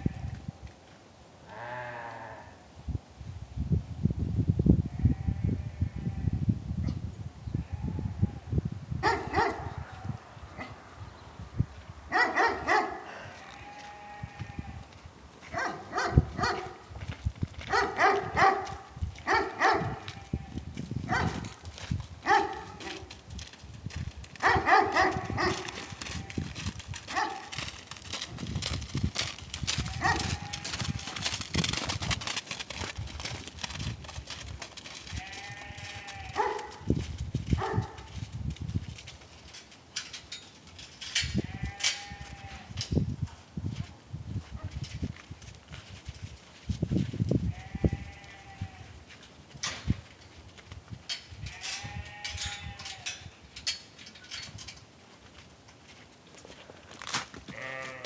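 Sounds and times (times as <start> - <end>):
sheep bleating: 1.5 - 2.6, 13.1 - 14.9, 29.8 - 31.2, 35.2 - 36.6, 47.5 - 48.9, 57.5 - 58.0
footsteps on snow: 13.4 - 36.9
dog barking in short yips: 15.5 - 16.7, 17.7 - 18.7, 19.3 - 20.0.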